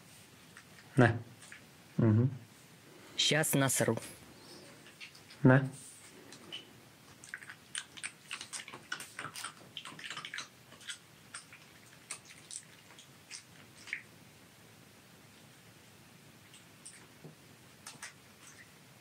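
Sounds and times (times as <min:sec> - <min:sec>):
fox chewing with quick clicks: 0:06.3 - 0:14.0.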